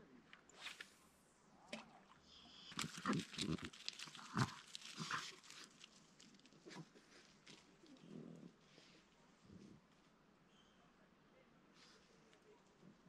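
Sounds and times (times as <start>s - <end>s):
dog snorting and snuffling: 2.7s - 5.8s.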